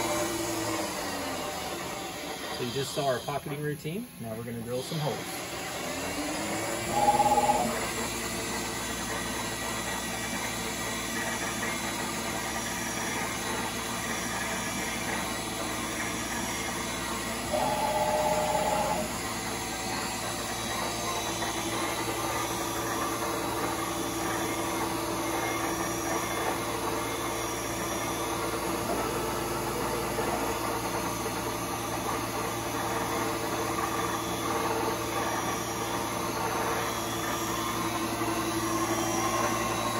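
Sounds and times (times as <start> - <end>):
mill spindle running: 0.0 - 39.9
servo hum: 6.0 - 8.8, 14.7 - 27.2
short loud tones: 6.9 - 7.8, 17.5 - 19.2.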